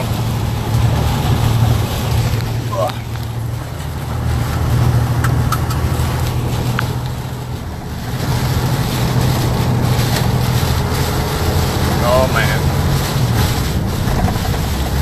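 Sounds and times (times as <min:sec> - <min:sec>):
storm wind hissing: 0:00.0 - 0:14.0
truck engine droning: 0:00.0 - 0:15.0
sharp ticks: 0:05.2 - 0:05.9.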